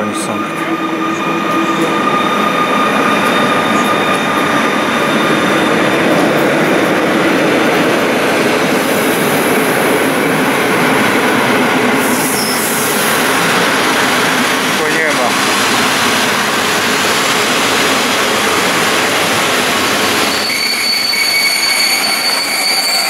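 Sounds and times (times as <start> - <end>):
locomotive high whine: 0.0 - 23.0
train wheels rumbling on rail: 0.0 - 23.0
brief high squeal: 12.1 - 12.8, 20.2 - 23.0.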